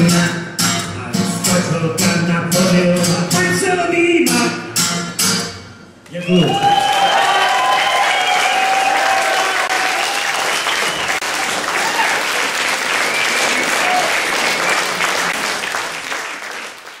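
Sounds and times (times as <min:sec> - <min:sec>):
audience applauding: 0:06.3 - 0:17.0.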